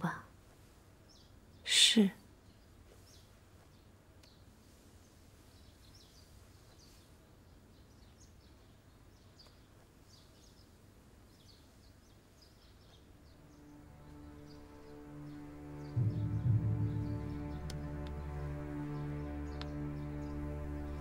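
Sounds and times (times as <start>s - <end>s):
distant birds chirping: 0.0s - 21.0s
low hum: 13.2s - 21.0s.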